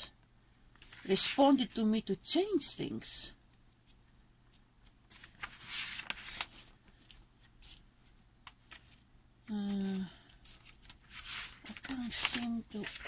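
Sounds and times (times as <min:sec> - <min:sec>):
packaging rustling and crinkling: 0:09.6 - 0:13.0.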